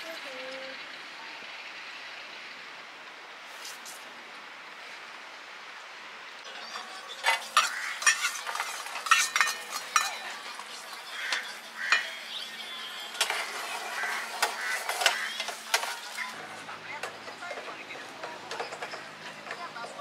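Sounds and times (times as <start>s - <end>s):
metal utensils clinking on cookware: 6.5s - 20.0s.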